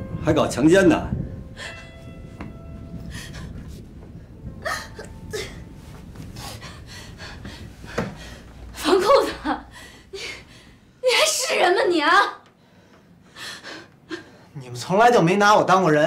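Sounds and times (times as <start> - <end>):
faint bell-like tone: 0.0 - 3.6
people gasping and breathing: 3.0 - 8.8, 9.6 - 10.9, 12.5 - 14.6.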